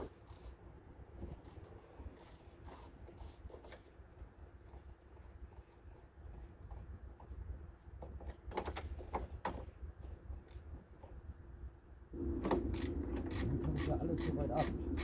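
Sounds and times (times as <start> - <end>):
rhythmic rasping tool noise: 12.6 - 15.0.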